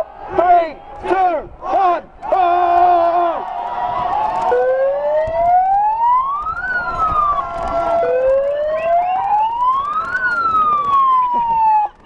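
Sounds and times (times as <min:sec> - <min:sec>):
crowd noise: 0:00.0 - 0:12.0
wailing siren: 0:04.2 - 0:12.0.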